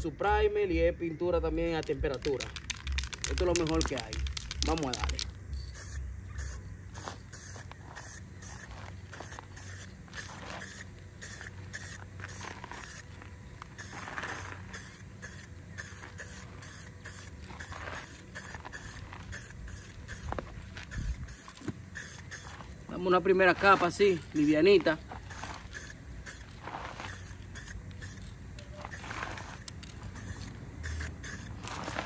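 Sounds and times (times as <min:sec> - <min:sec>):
spray can hissing bursts: 0:01.8 - 0:22.9, 0:23.5 - 0:32.0.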